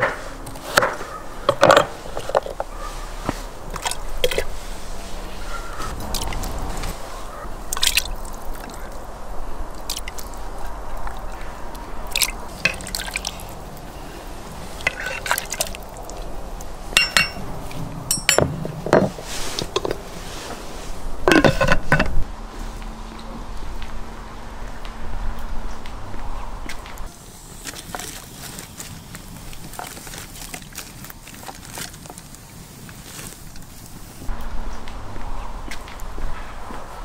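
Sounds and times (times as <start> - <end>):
food splashing into water: 7.7 - 8.8, 12.1 - 13.6
metal utensil clinking against pot: 14.8 - 15.6, 17.0 - 17.4, 18.1 - 19.1
metal clatter: 17.0 - 17.4.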